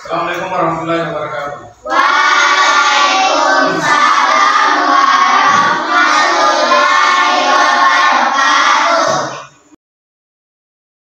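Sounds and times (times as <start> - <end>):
children chanting in unison: 1.8 - 9.8.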